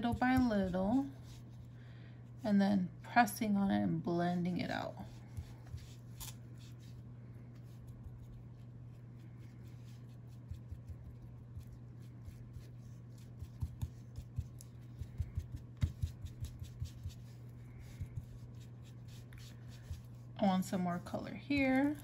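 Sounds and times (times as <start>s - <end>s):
steady low hum: 0.0s - 22.0s
foam tool tapping on paper: 13.2s - 18.4s.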